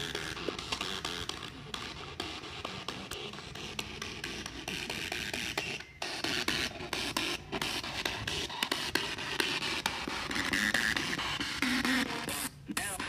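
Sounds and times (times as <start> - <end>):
radio static hiss: 10.2 - 13.0.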